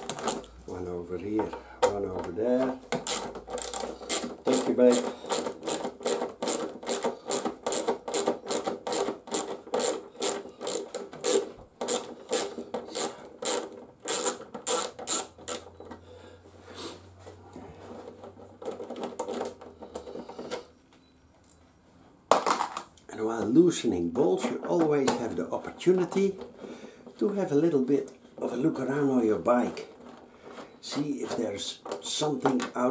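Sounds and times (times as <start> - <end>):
screwdriver scraping clicks: 2.9 - 15.7.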